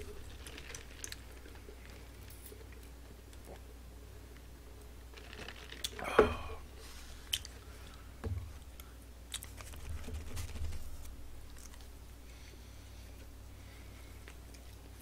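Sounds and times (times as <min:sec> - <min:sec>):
paper wrappers crinkling: 0:00.0 - 0:02.6, 0:05.1 - 0:06.1.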